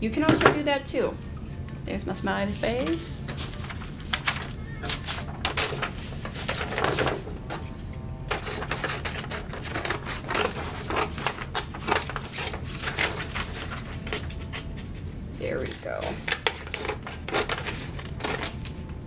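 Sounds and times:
low room hum: 0.0s - 19.0s
paper and wooden sticks clicking: 2.6s - 7.2s, 8.3s - 18.8s.

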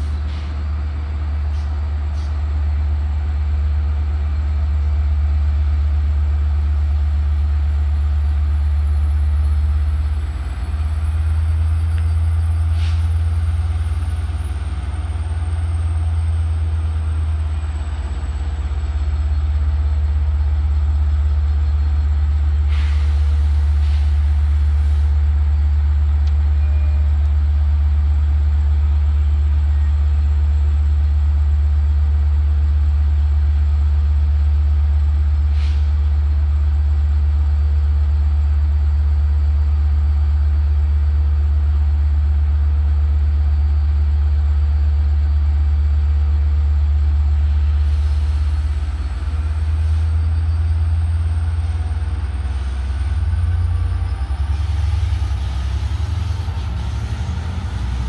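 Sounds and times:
diesel locomotive idling: 0.0s - 58.0s
air hiss: 12.7s - 13.1s, 22.7s - 25.2s, 35.5s - 36.0s, 47.8s - 50.1s.

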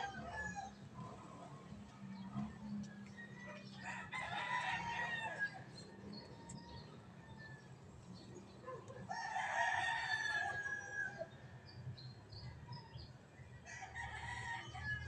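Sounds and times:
rooster crowing: 3.4s - 5.6s.

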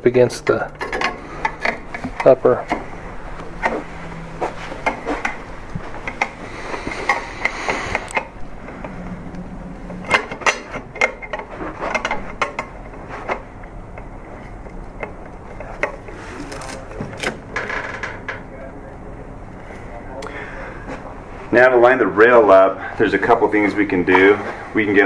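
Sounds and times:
metal rail scraping: 0.5s - 13.6s.

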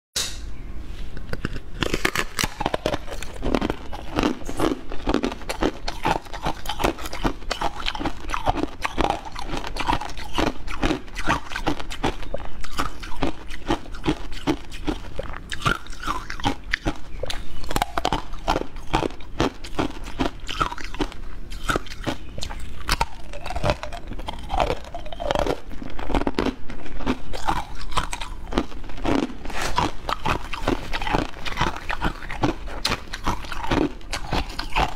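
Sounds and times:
person chewing crunchy snack: 1.2s - 34.9s
mouth sounds: 21.6s - 34.9s.

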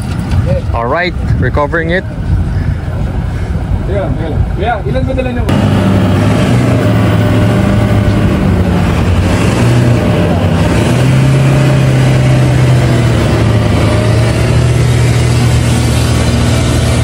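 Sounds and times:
engine running hard: 5.4s - 17.0s.

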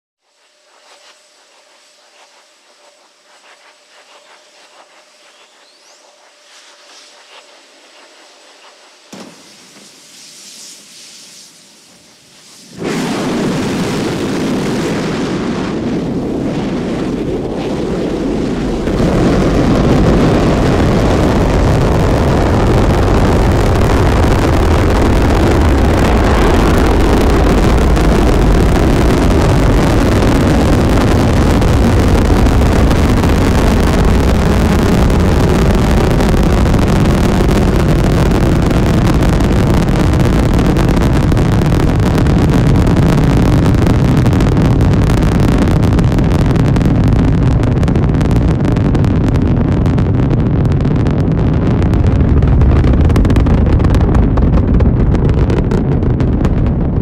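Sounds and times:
deep rocket roar: 12.6s - 57.0s.

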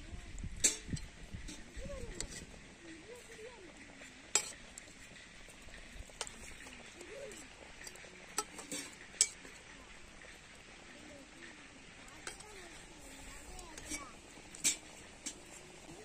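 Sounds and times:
gravy bubbling: 0.0s - 16.0s
ladle clinking against metal pot: 0.6s - 2.5s, 4.0s - 9.8s, 13.5s - 15.6s.

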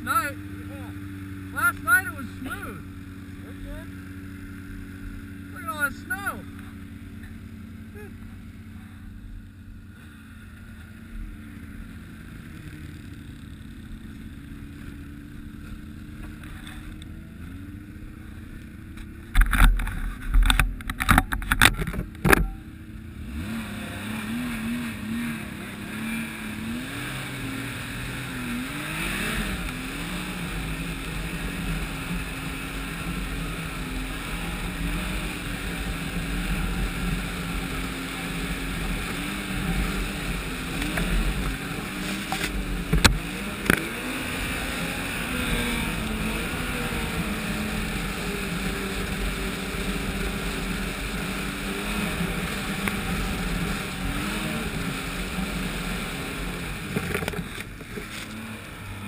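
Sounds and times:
rush of wind and snow: 0.0s - 59.0s
snowmobile engine running: 0.0s - 59.0s.

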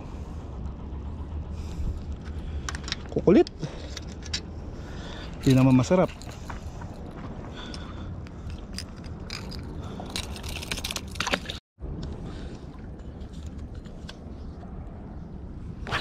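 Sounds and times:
wind: 0.0s - 16.0s
fishing tackle clicking and scraping: 2.0s - 4.5s, 5.2s - 7.1s, 8.2s - 12.1s, 12.9s - 14.8s.

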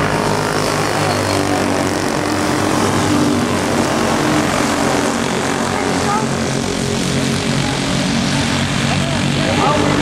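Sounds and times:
racing go-kart engines: 0.0s - 10.0s.

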